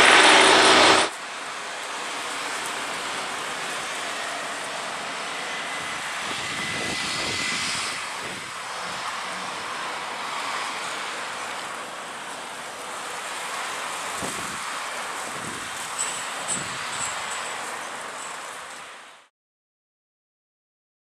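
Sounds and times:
thin high whine: 0.0 - 1.2
aircraft engine roar: 0.0 - 19.3.

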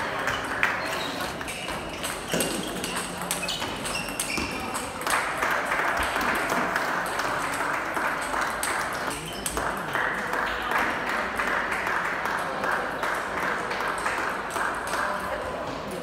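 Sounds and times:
table tennis balls clicking: 0.2 - 9.7.

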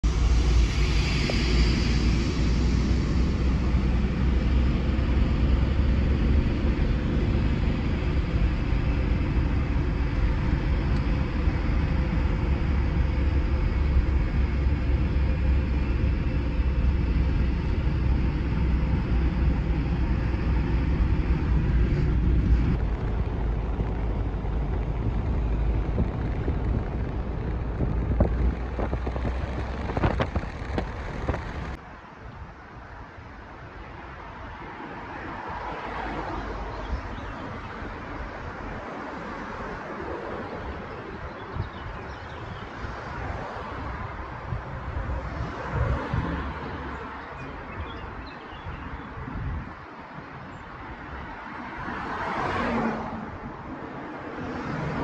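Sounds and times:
car road and engine rumble: 0.0 - 55.0
wind: 0.0 - 55.0.

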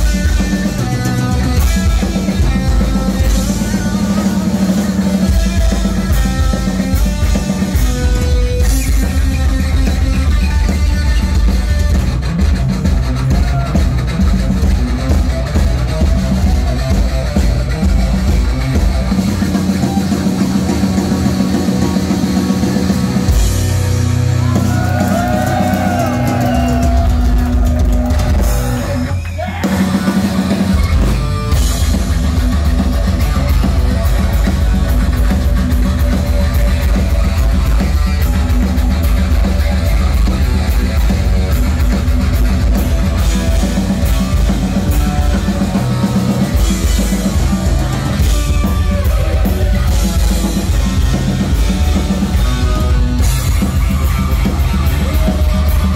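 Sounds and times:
bass guitar: 0.0 - 55.9
distorted electric guitar: 0.0 - 55.9
drum kit: 0.0 - 55.9.

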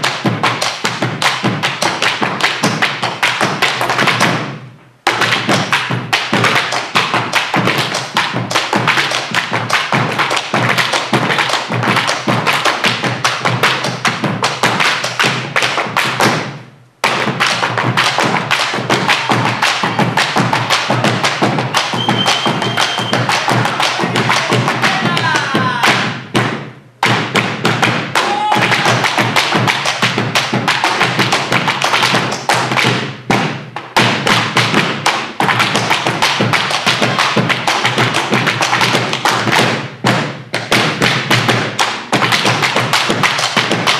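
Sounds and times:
boleadoras thudding on floor: 0.0 - 43.9
boots stamping on wooden stage: 0.0 - 43.9
bass drums: 16.2 - 43.9.

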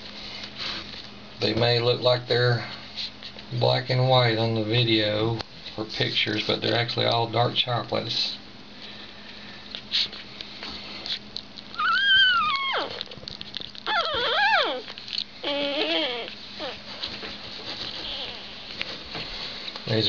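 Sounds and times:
puppies whimpering: 11.6 - 17.0, 17.7 - 18.8
faint rustles: 14.8 - 20.0.

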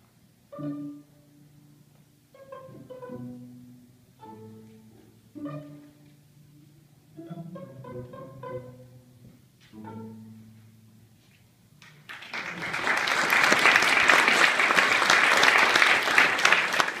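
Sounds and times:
string quartet low note: 0.5 - 11.2
audience applause: 12.0 - 17.0.

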